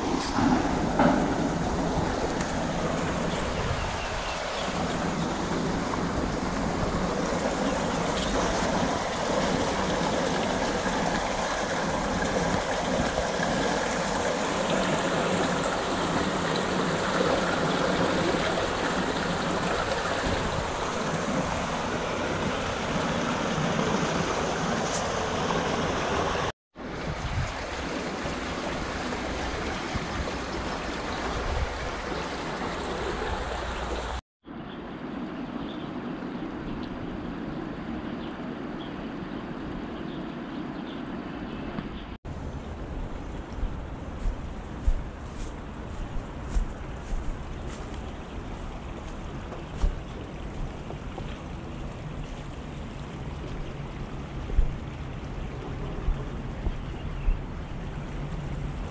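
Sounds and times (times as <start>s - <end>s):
water rushing through a ditch: 0.0s - 34.2s, 42.6s - 58.9s.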